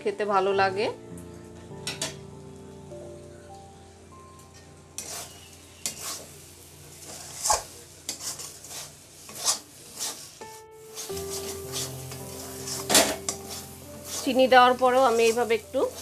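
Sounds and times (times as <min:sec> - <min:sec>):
metal spatula scraping a pan: 0:05.0 - 0:16.0.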